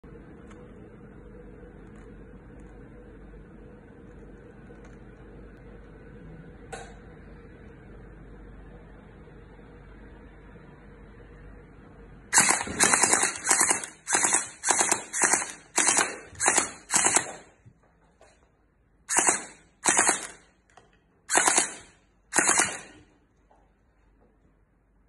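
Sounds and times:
gel blaster automatic fire bursts: 12.3s - 17.5s, 19.1s - 20.5s, 21.3s - 23.1s.

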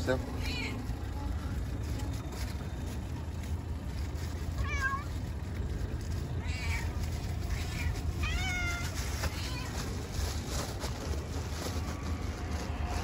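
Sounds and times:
cat meowing: 0.4s - 0.9s, 4.6s - 5.2s, 6.3s - 9.9s.

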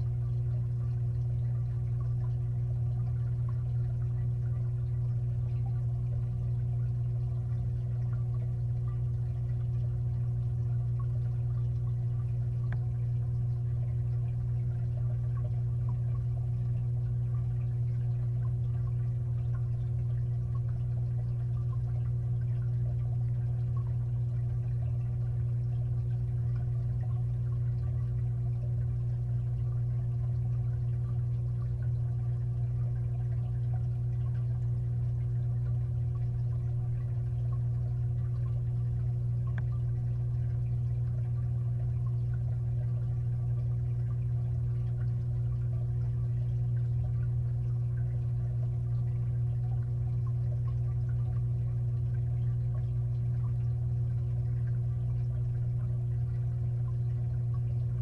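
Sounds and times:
aquarium filter hum underwater: 0.0s - 58.0s
faint ticks: 5.6s - 29.6s, 30.3s - 58.0s.

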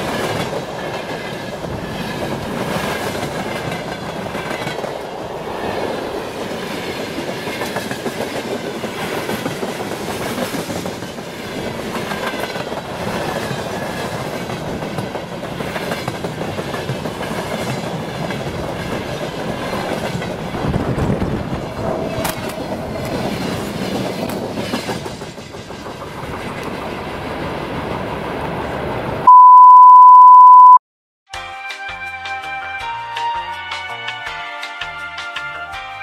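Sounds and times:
train wheels clattering on rails: 0.0s - 5.2s, 6.3s - 28.8s
loud steady beep: 29.3s - 30.8s
music: 31.3s - 36.0s.

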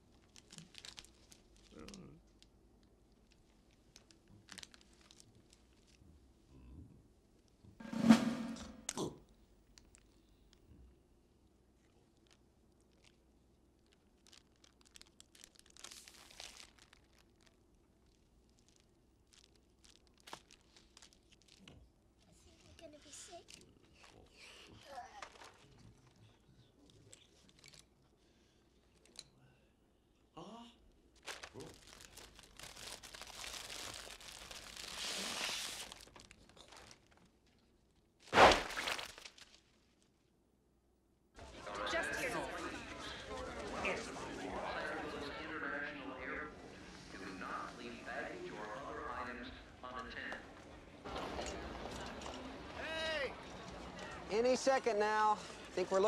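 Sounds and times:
plastic packet crinkling: 0.0s - 2.0s, 3.2s - 6.0s, 12.2s - 13.2s, 13.8s - 21.8s, 31.2s - 37.3s, 38.6s - 39.6s
paper bag popping bang: 38.3s - 39.3s.

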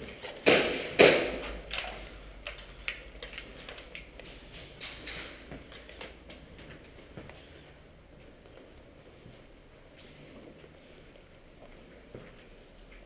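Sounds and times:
sharp echoing clicks and knocks: 0.3s - 3.0s.

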